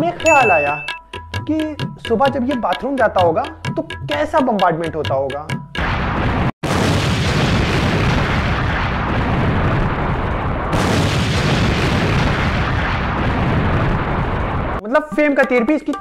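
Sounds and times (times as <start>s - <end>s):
explosion blasts rumbling: 5.8s - 14.8s.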